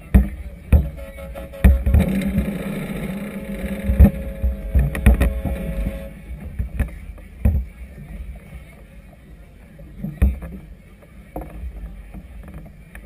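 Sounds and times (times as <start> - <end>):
low thumps: 0.0 - 8.3
motor hum: 0.0 - 8.7
wind: 0.0 - 13.0
choppy water around a vessel: 4.4 - 13.0.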